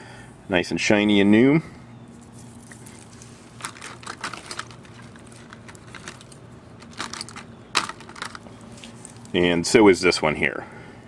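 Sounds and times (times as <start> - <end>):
plastic clicks and rattles: 3.6 - 8.5.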